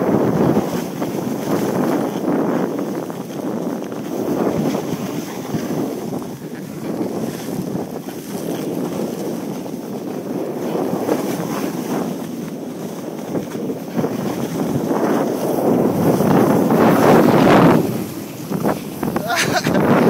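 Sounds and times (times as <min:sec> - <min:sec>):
snowboards sliding over snow: 0:00.0 - 0:20.0
wind rushing over microphone: 0:00.0 - 0:20.0.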